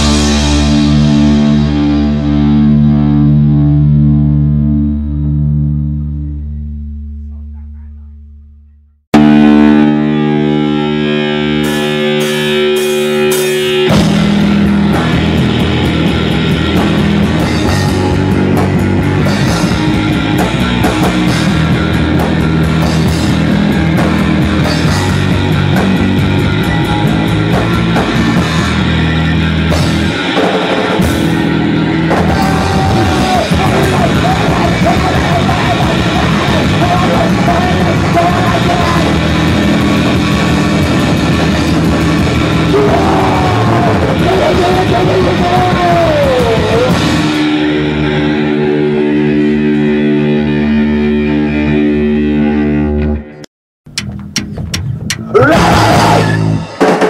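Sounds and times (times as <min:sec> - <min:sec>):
loud punk rock: 0:00.0 - 0:06.6, 0:09.1 - 0:57.0
sustained guitar chord ringing: 0:09.2 - 0:32.2.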